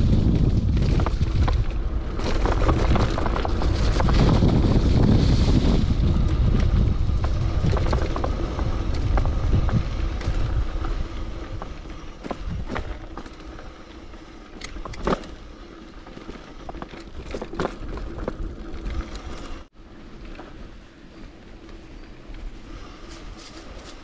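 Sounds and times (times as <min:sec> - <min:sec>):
wind buffeting microphone: 0:00.0 - 0:13.4
bicycle clicks and rattles: 0:00.0 - 0:24.0.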